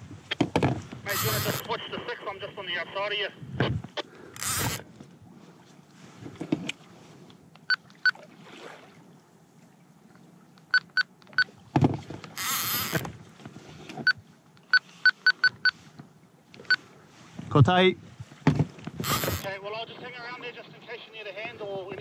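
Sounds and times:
radio key beeps: 1.1s - 2.2s, 10.6s - 11.5s, 14.1s - 15.8s, 19.0s - 19.6s
radio hiss burst: 1.1s - 3.0s, 19.0s - 21.1s
faint water wash: 4.4s - 15.0s.

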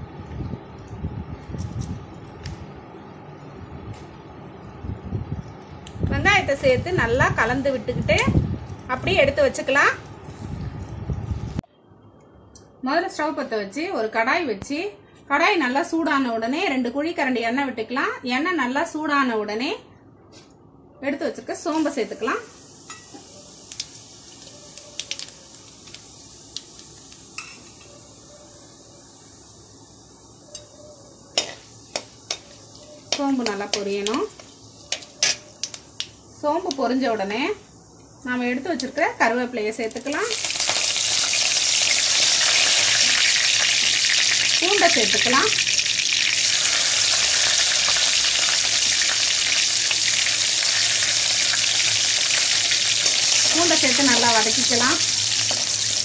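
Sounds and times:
seeds sizzling in hot oil: 21.6s - 56.0s.

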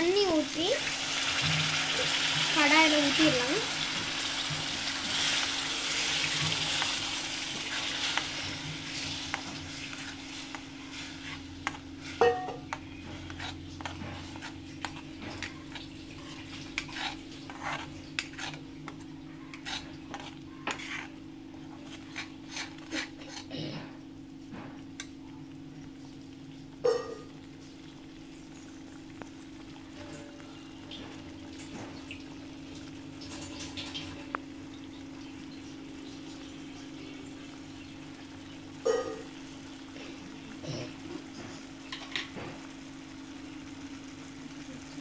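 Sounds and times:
masala sizzling in a pan: 0.0s - 23.4s, 26.8s - 45.0s
steel spoon stirring in a pan: 4.0s - 23.5s.

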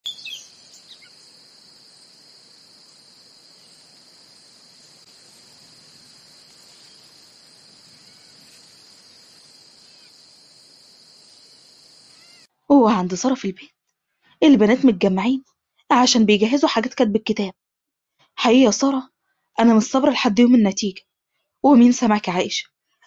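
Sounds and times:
crickets chorus: 0.0s - 12.5s.

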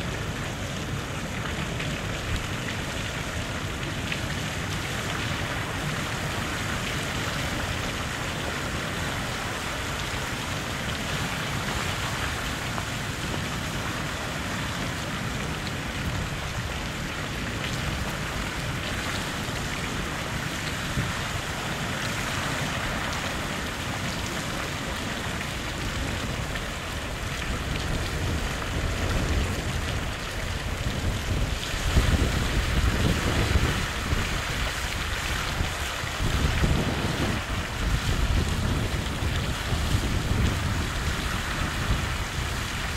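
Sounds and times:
water rushing through spillway: 0.0s - 42.9s
wind buffeting microphone: 15.7s - 42.9s.

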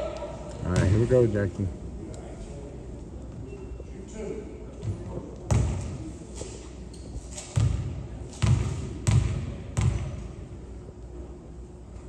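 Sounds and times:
basketball bouncing on hardwood floor: 7.6s - 10.2s.

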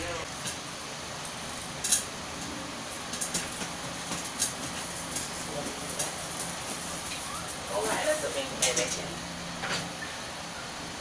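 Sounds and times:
gas burner hissing: 0.0s - 11.0s.

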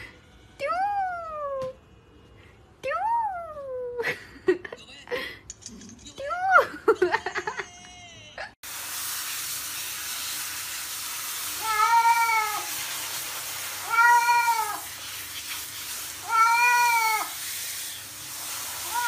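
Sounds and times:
shower spraying water: 8.6s - 19.0s
cat meowing: 11.6s - 12.7s, 13.8s - 14.9s, 16.2s - 17.4s.

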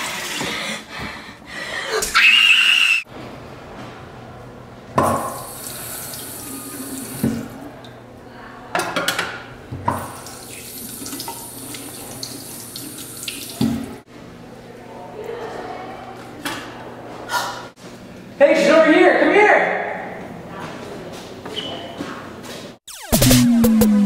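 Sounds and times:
tap water running into sink: 5.0s - 7.6s, 9.9s - 14.0s.

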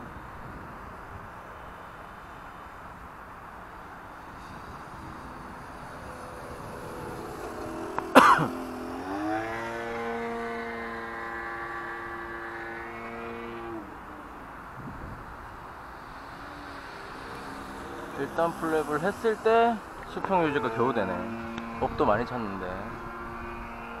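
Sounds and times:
electric motor whine: 5.0s - 15.2s, 16.1s - 24.0s.

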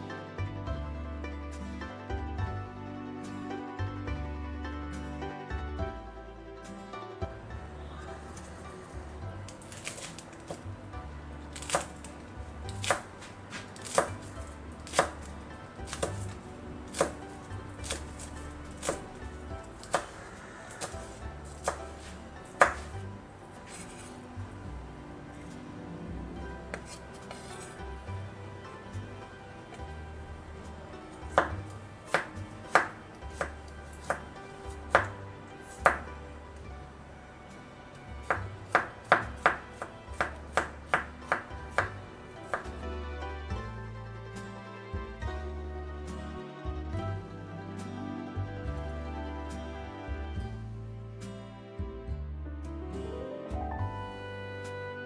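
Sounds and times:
knife chopping on wooden board: 9.6s - 10.7s, 11.5s - 19.2s, 19.8s - 23.1s, 26.7s - 27.8s, 31.2s - 36.2s, 38.2s - 42.7s.

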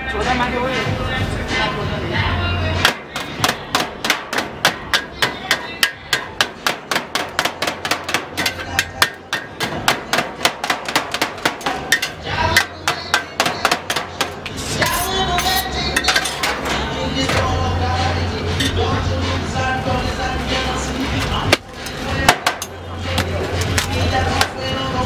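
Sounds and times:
knife chopping meat on steel tray: 2.8s - 16.4s.

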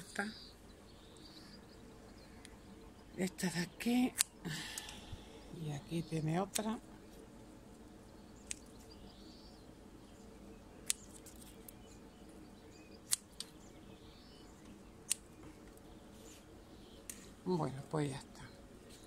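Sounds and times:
scissors snipping leaves: 3.9s - 5.0s, 6.4s - 6.8s, 8.4s - 8.9s, 10.8s - 11.8s, 13.1s - 13.6s, 15.0s - 15.4s.

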